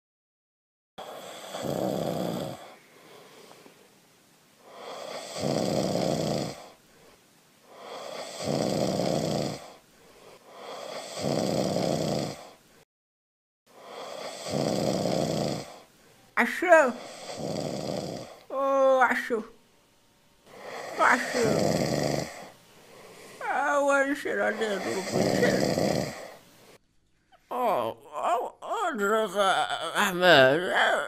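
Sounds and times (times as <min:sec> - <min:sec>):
man snoring: 0:01.0 - 0:03.6, 0:04.6 - 0:06.8, 0:07.7 - 0:12.6, 0:13.7 - 0:15.9, 0:17.0 - 0:18.5, 0:20.5 - 0:23.5, 0:24.3 - 0:26.4.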